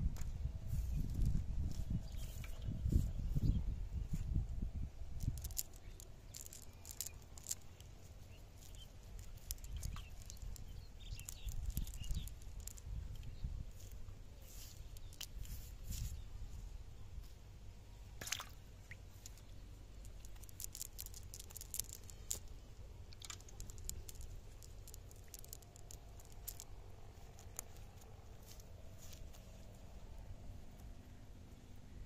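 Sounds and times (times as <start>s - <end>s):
small crackles and clicks: 5.0s - 16.2s, 18.2s - 31.2s.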